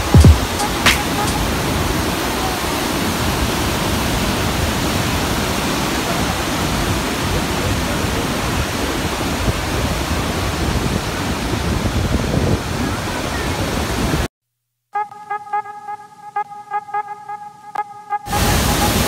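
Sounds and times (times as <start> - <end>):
waterfall crashing: 0.0 - 14.2, 18.3 - 19.0.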